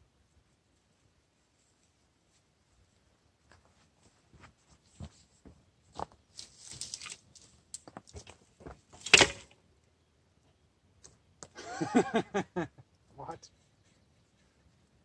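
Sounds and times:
twigs rustling: 0:05.9 - 0:09.6
branches crashing onto fire: 0:08.9 - 0:09.6.

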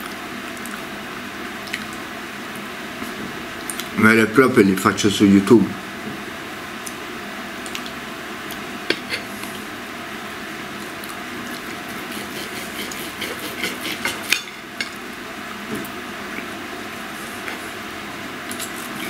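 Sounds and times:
cutlery scraping a plate: 0:08.9 - 0:09.3, 0:11.9 - 0:15.0.

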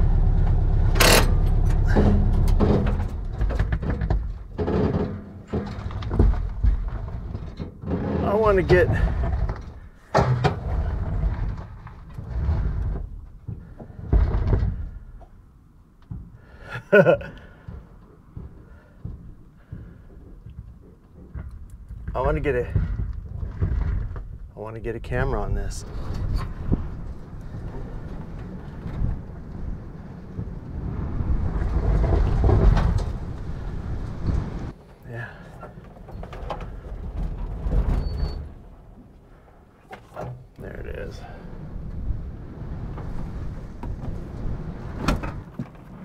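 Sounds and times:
gusty wind buffeting microphone: 0:21.6 - 0:34.8, 0:40.7 - 0:46.0.

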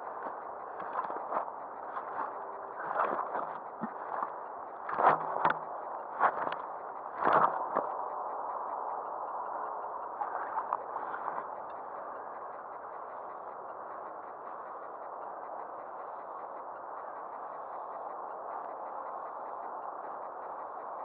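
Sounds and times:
water gurgling and splashing: 0:01.9 - 0:04.3.

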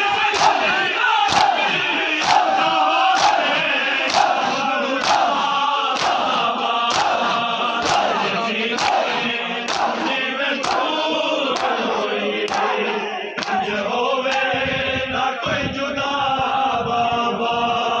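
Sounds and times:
crowd of men chanting: 0:00.0 - 0:18.0
hands slapping bare chests: 0:01.3 - 0:02.5, 0:03.2 - 0:08.2, 0:08.8 - 0:09.1, 0:09.7 - 0:10.9, 0:11.5 - 0:11.8.

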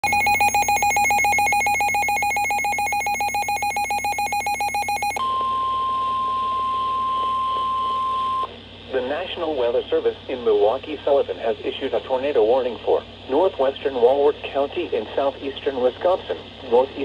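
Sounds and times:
rapid electronic beeping: 0:00.0 - 0:05.2
steady alarm tone: 0:00.0 - 0:08.5.

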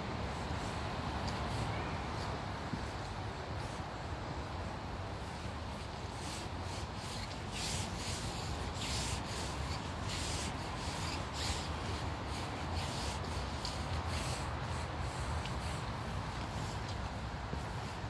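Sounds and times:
footsteps on cobblestones: 0:16.2 - 0:18.0.

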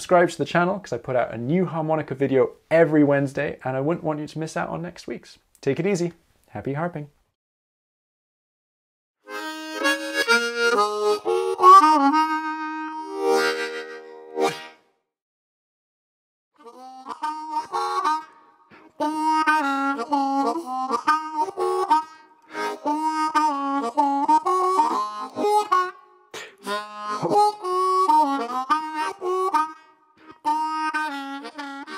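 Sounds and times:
harmonica melody: 0:09.2 - 0:15.0, 0:16.6 - 0:31.9.

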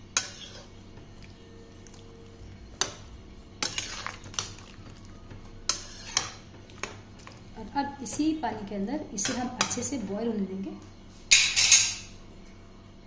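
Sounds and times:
metal spatula scraping pan: 0:00.2 - 0:00.7, 0:05.7 - 0:06.4.

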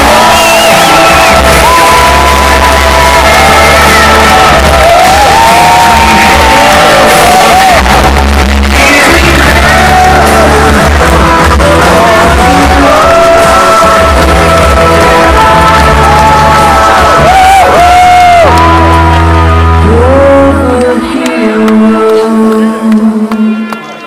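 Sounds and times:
crowd cheering and whooping: 0:00.0 - 0:21.6
loud music over loudspeakers: 0:00.0 - 0:24.0
people singing along: 0:08.8 - 0:17.4.

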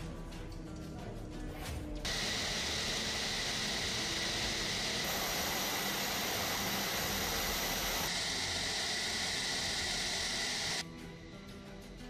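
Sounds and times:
faint high whine: 0:02.1 - 0:10.8
jet engines hissing: 0:02.1 - 0:10.8.

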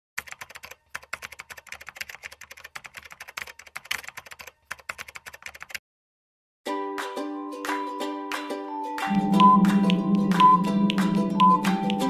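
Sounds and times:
keyboard typing clicks: 0:00.2 - 0:05.8
plucked-string music: 0:06.7 - 0:12.0.

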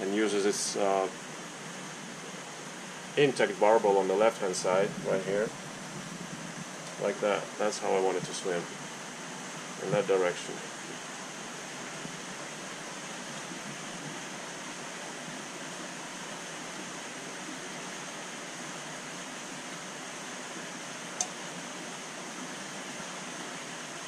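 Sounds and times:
aquarium water rushing: 0:00.0 - 0:24.0
sharp click: 0:21.2 - 0:21.4.

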